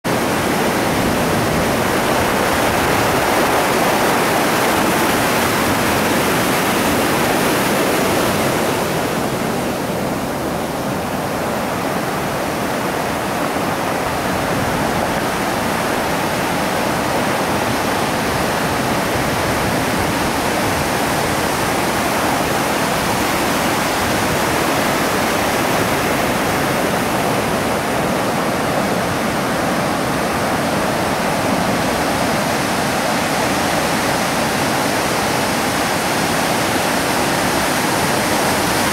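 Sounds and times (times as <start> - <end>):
ocean surf breaking: 0.0 - 38.9.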